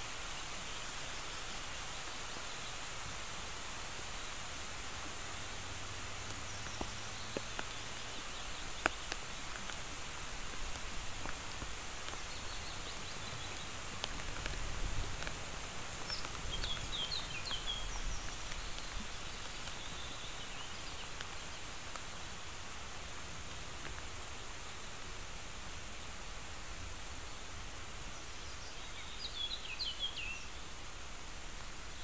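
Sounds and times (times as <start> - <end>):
rain hissing through trees: 0.0 - 32.0
water drips ticking: 6.2 - 20.1
small bird chirping: 16.0 - 21.6.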